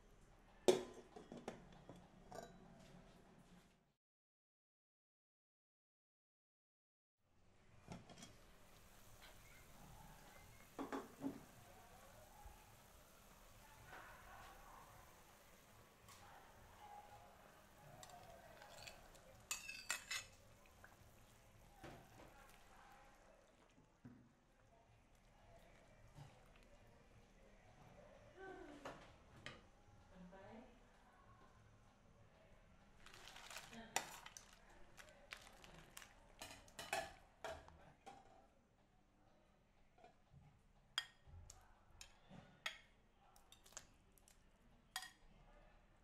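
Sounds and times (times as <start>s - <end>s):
metal spoon clinking on pot: 18.0s - 20.4s.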